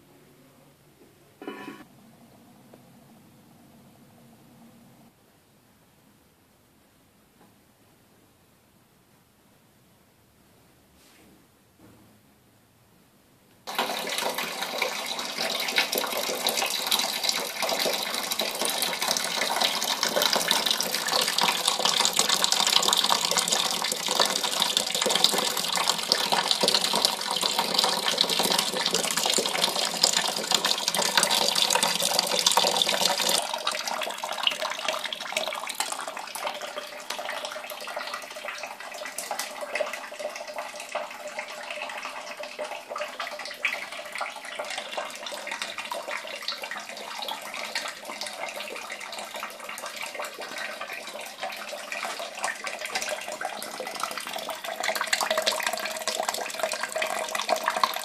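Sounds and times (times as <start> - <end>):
liquid pouring and splashing: 13.7 - 58.0.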